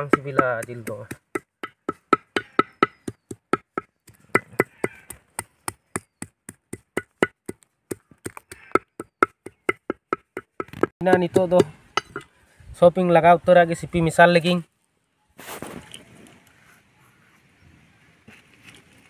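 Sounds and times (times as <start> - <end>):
knife chopping on wooden block: 0.0 - 12.2.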